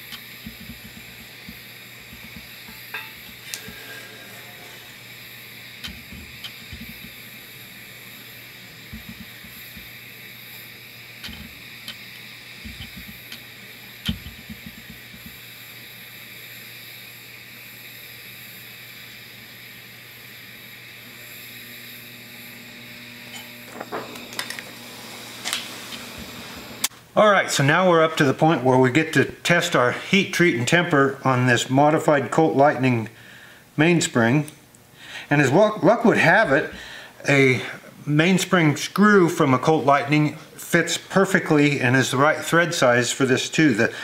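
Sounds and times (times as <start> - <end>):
hot metal sizzling in oil: 0.0 - 26.9
torch flame hissing: 0.0 - 26.9, 35.1 - 44.0.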